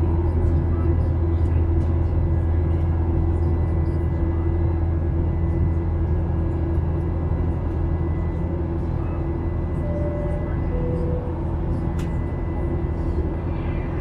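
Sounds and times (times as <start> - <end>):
jet engines droning in cabin: 0.0 - 14.0
two-tone cabin chime: 9.7 - 13.0.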